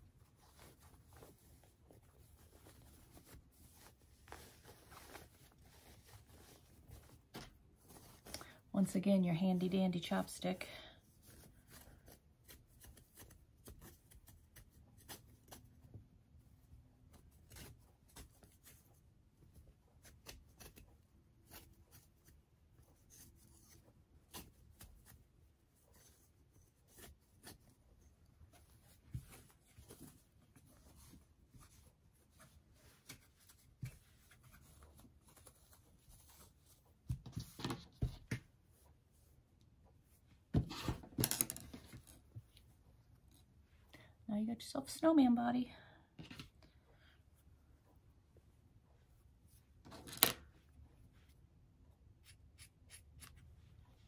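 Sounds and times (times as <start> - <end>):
fabric rubbing: 0.0 - 8.4.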